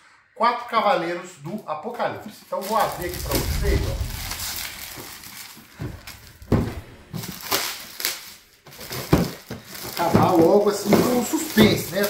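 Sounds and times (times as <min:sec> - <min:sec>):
plastic shrink-wrap crinkling and tearing: 0:07.4 - 0:12.0.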